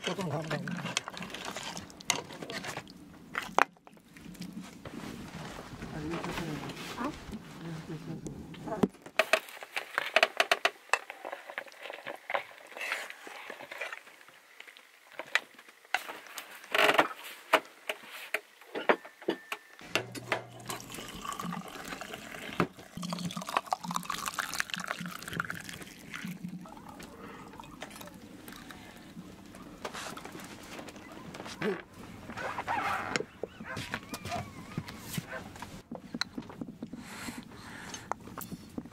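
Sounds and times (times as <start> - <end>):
tea pouring into a cup: 20.1 - 29.6.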